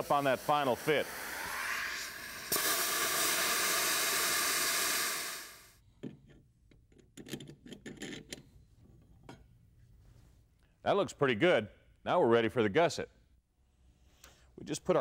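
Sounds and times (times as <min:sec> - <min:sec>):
plasma cutter hissing: 0:00.0 - 0:05.7.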